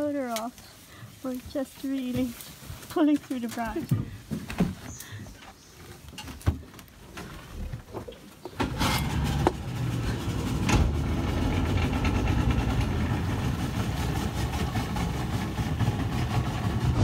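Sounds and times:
outboard motor running: 9.1 - 17.0.

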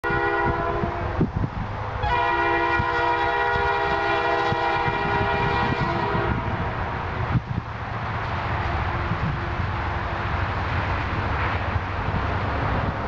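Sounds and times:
locomotive air horn blasts: 0.0 - 1.3, 2.0 - 6.9.

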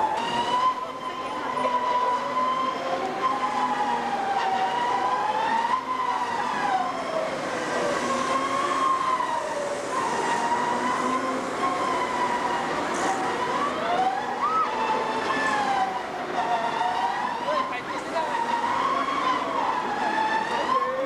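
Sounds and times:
people screaming: 14.3 - 15.1.

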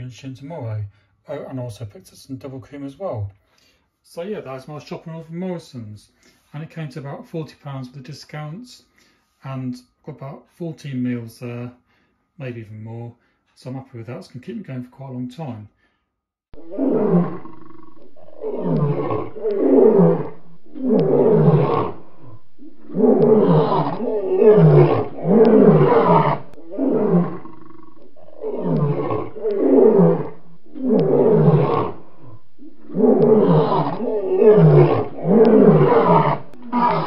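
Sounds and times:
lion roaring: 16.6 - 37.0.

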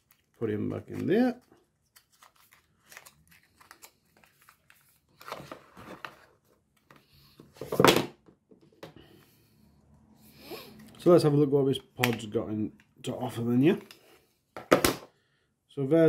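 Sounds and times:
cardboard and paper rustling: 0.0 - 7.9.

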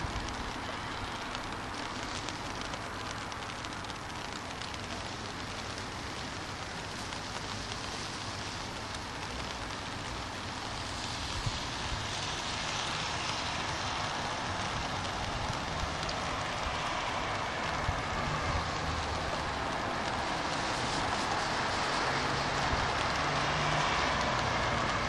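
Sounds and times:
car tyres hissing on wet road: 0.0 - 25.0
rain on street: 0.0 - 25.0.

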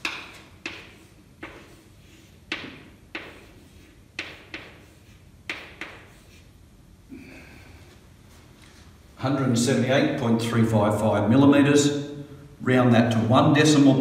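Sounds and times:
chalk tapping on blackboard: 0.0 - 6.5.

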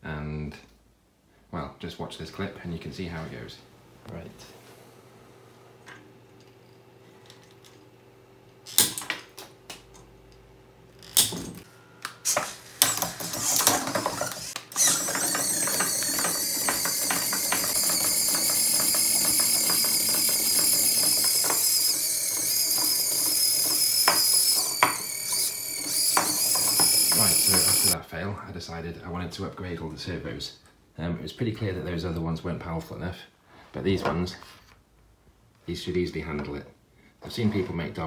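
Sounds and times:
servos high buzzing whine: 11.0 - 28.0
servo clicks and knocks: 12.3 - 28.0.

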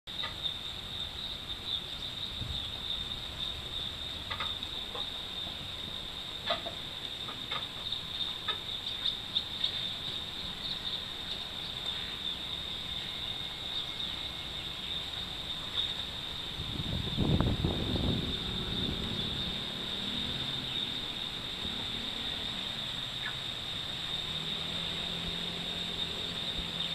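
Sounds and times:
insects trilling: 0.1 - 26.9
faint ticks: 4.3 - 5.6.

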